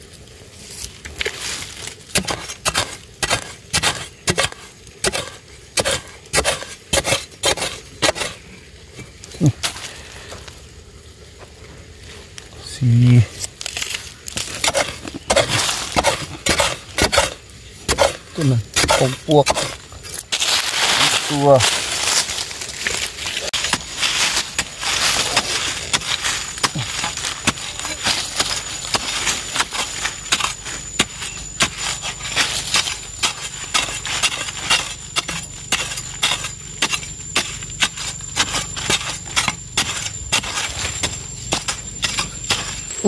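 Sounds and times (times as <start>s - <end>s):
spade chopping into dry soil: 2.1s - 8.4s, 13.6s - 21.7s, 23.5s - 43.0s.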